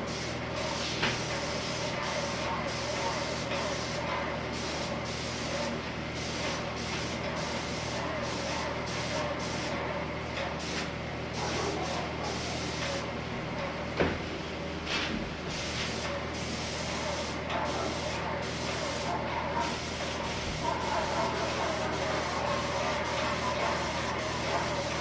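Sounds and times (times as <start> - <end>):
paint spray hissing: 0.0 - 9.8, 15.5 - 25.0.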